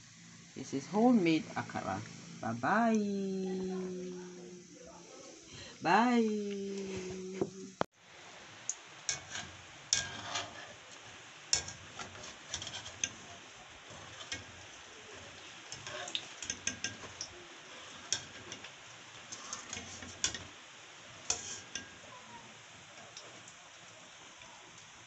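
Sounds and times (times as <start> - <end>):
food deep-frying in oil: 0.0 - 25.0
wire skimmer scraping metal pan: 9.1 - 18.7, 19.3 - 20.5, 21.2 - 22.0.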